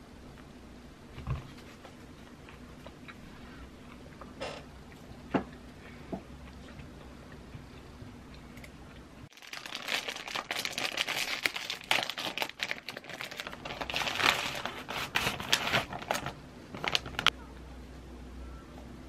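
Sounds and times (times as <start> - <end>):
plastic wrapper crinkling: 9.3 - 17.3.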